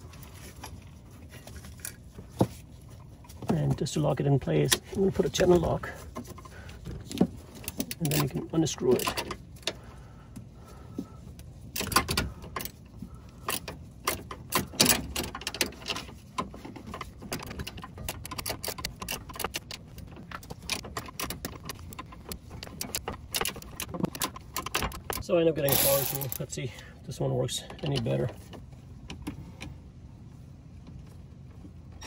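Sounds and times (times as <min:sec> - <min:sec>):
metal clinks: 0:21.1 - 0:26.4.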